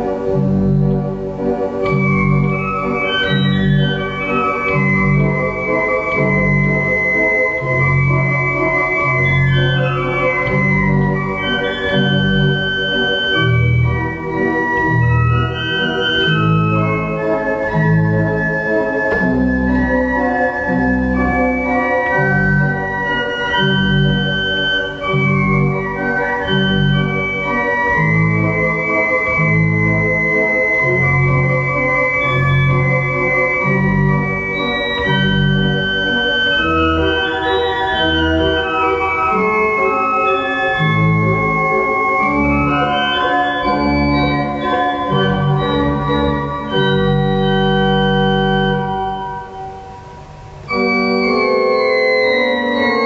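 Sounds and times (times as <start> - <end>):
organ playing: 0.0 - 53.0.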